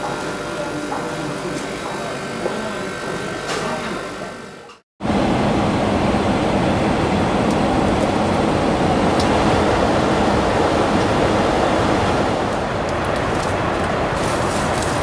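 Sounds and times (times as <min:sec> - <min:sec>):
airliner cabin engine noise: 0:05.0 - 0:15.0.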